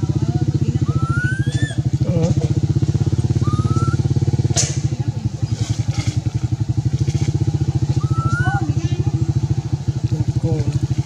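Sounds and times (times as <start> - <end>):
small engine idling: 0.0 - 11.0
baby monkey cooing: 0.8 - 2.4, 3.3 - 4.2, 8.0 - 8.7.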